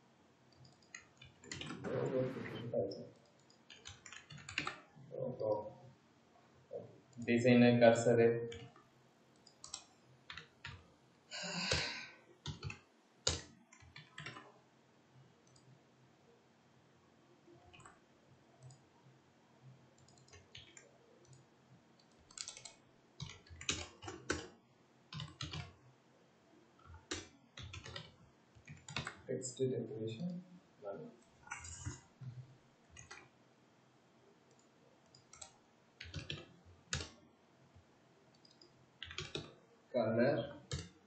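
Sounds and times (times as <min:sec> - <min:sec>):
typing on computer keyboard: 0:00.5 - 0:02.0, 0:03.2 - 0:04.9, 0:08.5 - 0:10.8, 0:11.7 - 0:14.5, 0:18.6 - 0:18.8, 0:20.0 - 0:21.4, 0:22.0 - 0:24.5, 0:25.1 - 0:25.8, 0:26.8 - 0:29.2, 0:31.5 - 0:33.3, 0:34.5 - 0:37.2, 0:38.3 - 0:39.5, 0:40.7 - 0:41.0.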